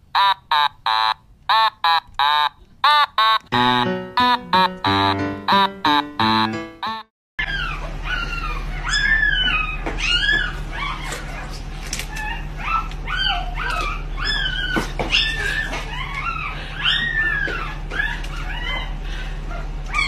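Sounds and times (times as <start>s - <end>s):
puppies whining and yipping: 4.6s - 20.0s.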